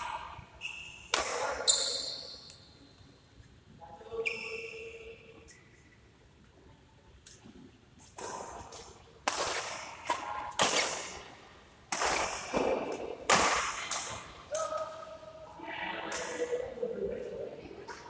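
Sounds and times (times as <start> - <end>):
rackets hitting shuttlecock: 0.6 - 2.4, 8.0 - 11.3, 11.9 - 15.0
shoe squeak: 0.6 - 2.5, 4.1 - 5.8.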